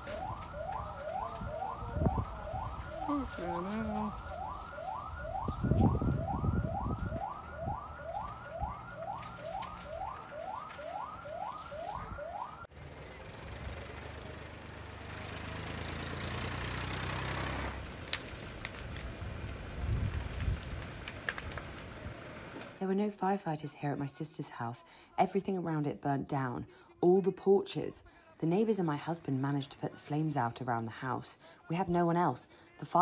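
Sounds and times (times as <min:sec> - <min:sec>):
siren whooping: 0:00.0 - 0:12.7.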